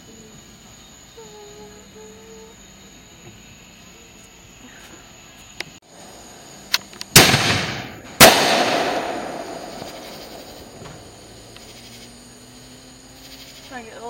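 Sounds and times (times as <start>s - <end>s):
faint firework pops: 6.7s - 11.7s
fireworks bangs with rumble: 7.1s - 11.2s.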